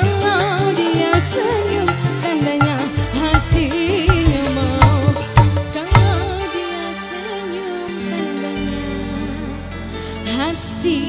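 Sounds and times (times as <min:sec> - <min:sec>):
bass: 0:00.0 - 0:11.0
woman singing into microphone: 0:00.0 - 0:11.0
drum beat: 0:01.1 - 0:06.4.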